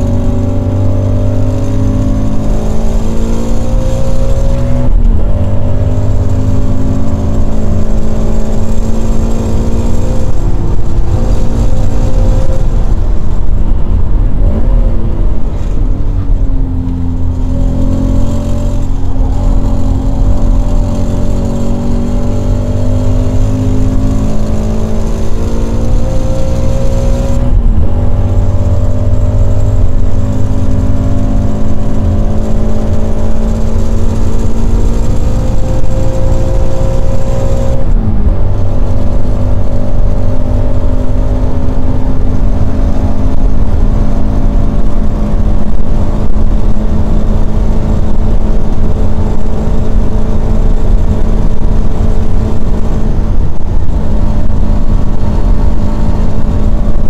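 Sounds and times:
car engine at full throttle: 0.0s - 57.0s.

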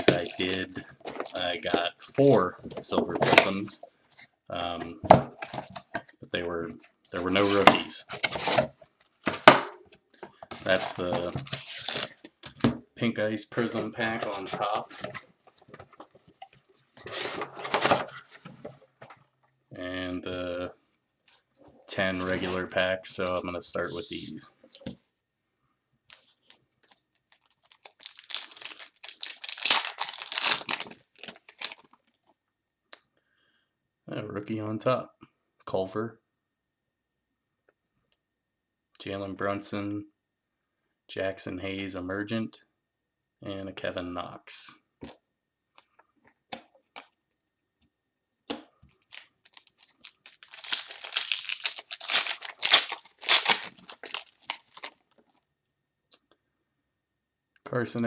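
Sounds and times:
wrapper crinkling: 0.0s - 2.5s, 26.1s - 32.3s, 48.9s - 55.3s
wrapper tearing: 0.0s - 2.5s, 10.6s - 12.2s, 26.8s - 32.3s, 48.9s - 55.0s.

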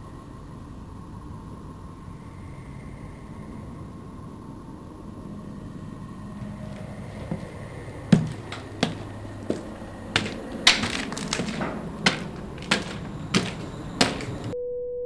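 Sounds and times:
sharp knocks: 6.4s - 14.6s.

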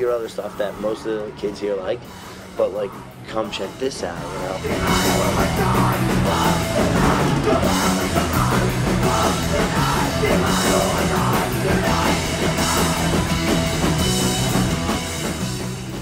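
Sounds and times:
drum kit: 0.0s - 16.0s
electric guitar: 2.0s - 16.0s
person singing: 2.6s - 13.4s.

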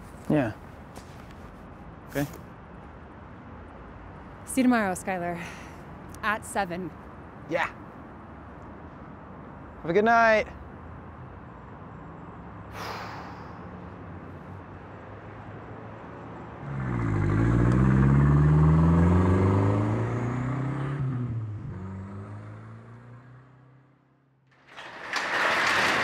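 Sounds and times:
car engine revving: 16.6s - 23.8s.

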